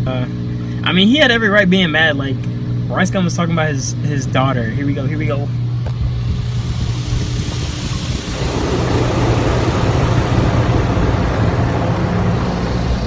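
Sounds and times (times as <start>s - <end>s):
steady low hum: 0.0s - 13.0s
water jets spraying car: 6.0s - 13.0s.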